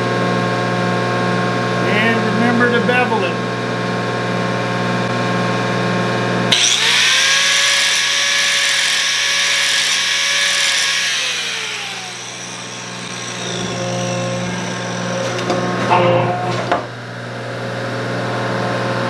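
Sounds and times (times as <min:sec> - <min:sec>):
steady machine hum: 0:00.0 - 0:19.0
angle grinder grinding metal: 0:06.5 - 0:16.5.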